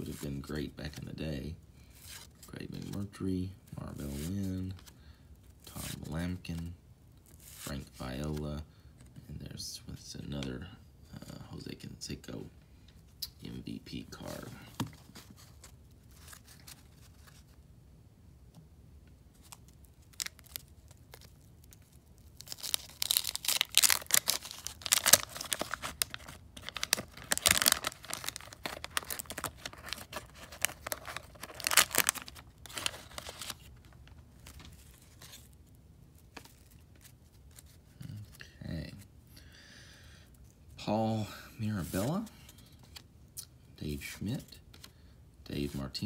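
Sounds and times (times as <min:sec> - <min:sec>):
paper wrapper tearing and crinkling: 0:19.4 - 0:35.6.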